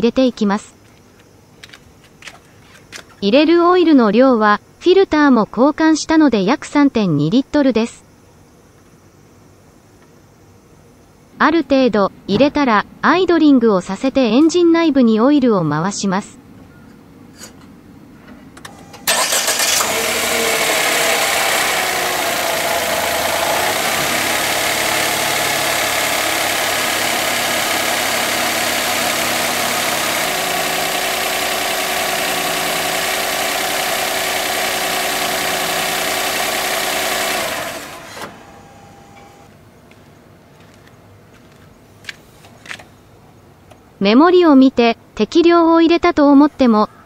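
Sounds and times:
car engine starting and idling: 0:18.6 - 0:39.5.

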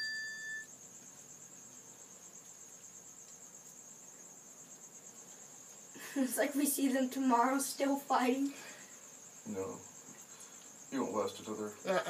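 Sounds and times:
bell-like chime: 0:00.0 - 0:00.7
cricket trilling: 0:00.0 - 0:12.0.

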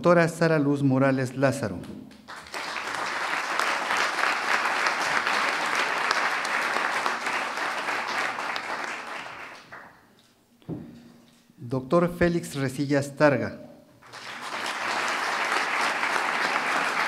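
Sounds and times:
people applauding: 0:02.1 - 0:10.2, 0:14.0 - 0:17.0.

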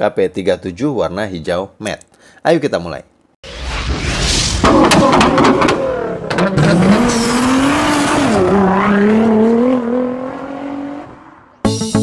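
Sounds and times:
sports car engine revving: 0:05.0 - 0:11.2.

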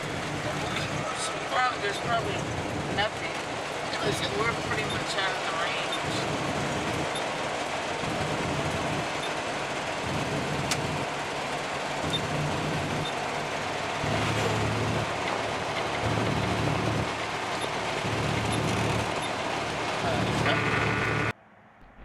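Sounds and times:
road and engine noise: 0:00.0 - 0:22.0.

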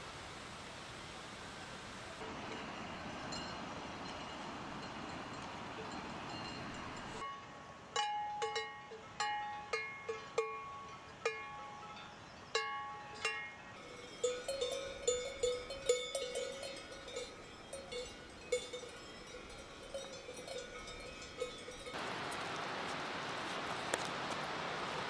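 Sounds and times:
cowbells clanking: 0:02.4 - 0:22.0.

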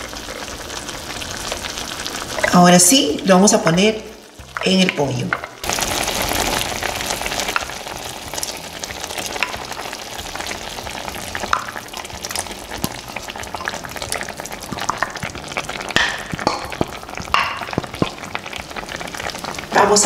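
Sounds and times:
sauce bubbling and popping: 0:00.0 - 0:03.3, 0:04.0 - 0:20.0
liquid being poured: 0:05.6 - 0:19.7
taps on a pan: 0:15.9 - 0:18.2.

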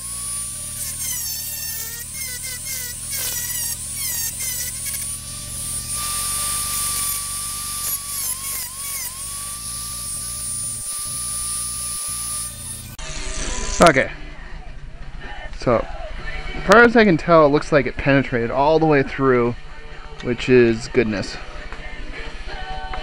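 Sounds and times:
rotary tool motor whine: 0:00.0 - 0:13.9
metal grinding hiss: 0:00.0 - 0:14.0.

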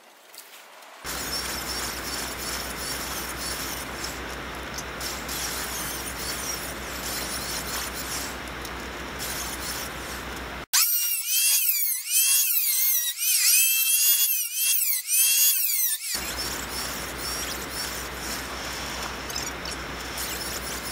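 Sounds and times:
steady hiss with low hum: 0:00.0 - 0:10.7, 0:16.2 - 0:20.9
electric planer whining: 0:01.1 - 0:20.9.

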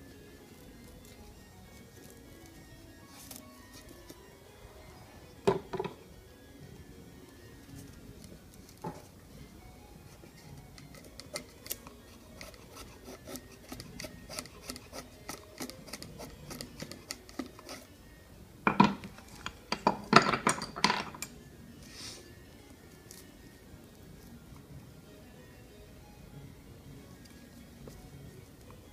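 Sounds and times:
chisel scraping wood: 0:10.8 - 0:17.9.

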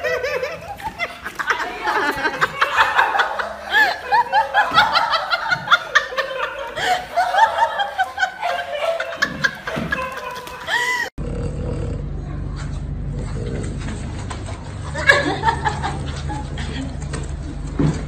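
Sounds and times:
person giggling: 0:00.0 - 0:11.1.

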